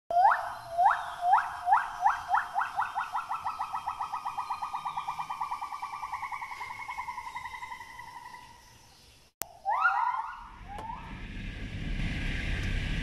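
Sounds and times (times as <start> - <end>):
gibbon calling: 0.1 - 8.6, 9.4 - 11.1.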